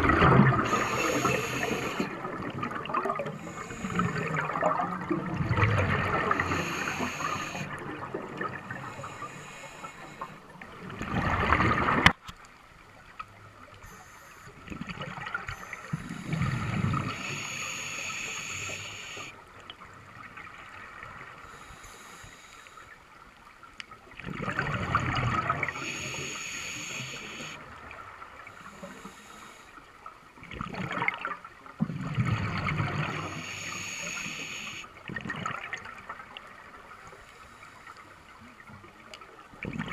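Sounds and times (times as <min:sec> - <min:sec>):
bubbly gurgling exhalations: 0:00.0 - 0:08.8
diver breathing through regulator: 0:00.5 - 0:02.2, 0:03.2 - 0:04.6, 0:05.5 - 0:07.9, 0:08.6 - 0:10.6, 0:13.8 - 0:14.6, 0:15.5 - 0:19.4, 0:21.4 - 0:23.0, 0:25.6 - 0:27.6, 0:28.6 - 0:29.8, 0:33.0 - 0:34.9.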